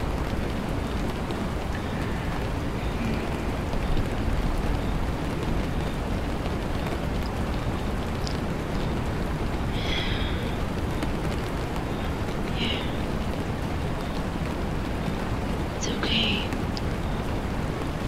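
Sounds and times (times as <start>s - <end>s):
steady rain: 0.0s - 18.0s.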